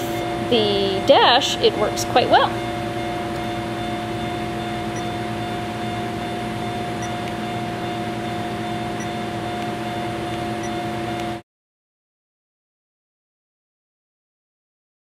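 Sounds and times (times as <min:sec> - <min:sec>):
mechanical hum with held tones: 0:00.0 - 0:11.4.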